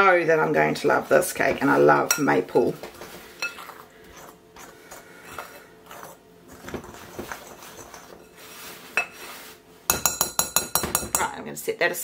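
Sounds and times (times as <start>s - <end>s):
spoon scraping flour in bowl: 3.0s - 10.2s.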